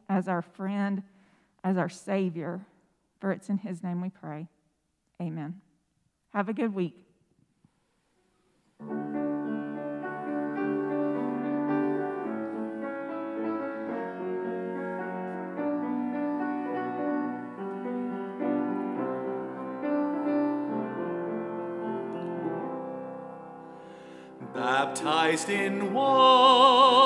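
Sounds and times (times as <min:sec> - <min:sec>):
upright piano playing chords: 0:08.8 - 0:27.0.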